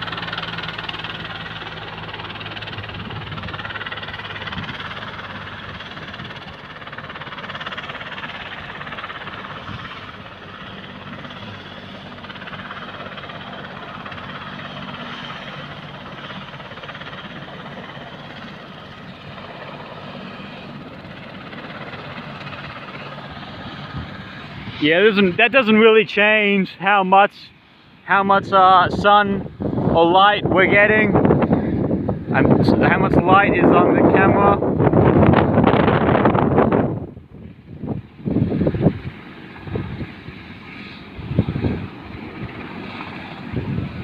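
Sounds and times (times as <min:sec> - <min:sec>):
low drone: 0:00.0 - 0:30.7
helicopter engine rushing hum: 0:00.0 - 0:44.0.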